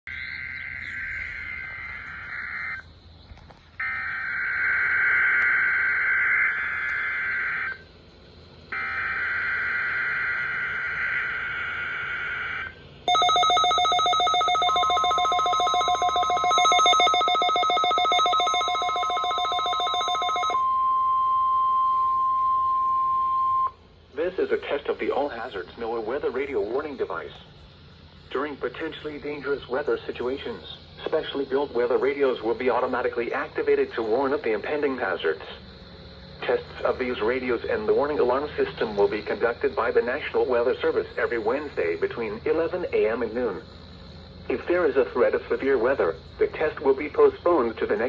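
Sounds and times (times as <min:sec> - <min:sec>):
screechy digital data bursts: 0:03.8 - 0:07.8, 0:08.7 - 0:20.6
rapidly pulsing electronic alert: 0:08.7 - 0:20.6
steady alert tone: 0:13.1 - 0:21.0.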